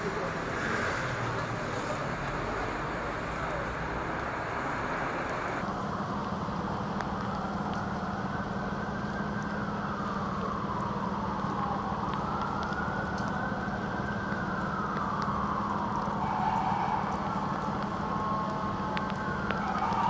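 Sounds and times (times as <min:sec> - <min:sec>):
city traffic noise: 0:00.0 - 0:20.0
siren wailing: 0:01.4 - 0:20.0.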